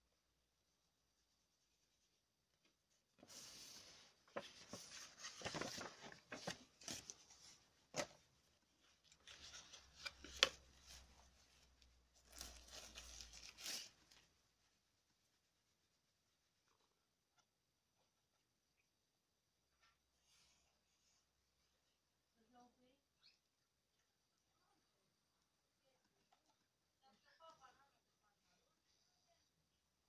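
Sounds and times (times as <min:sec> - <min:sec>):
paper rustling: 0:03.1 - 0:14.3.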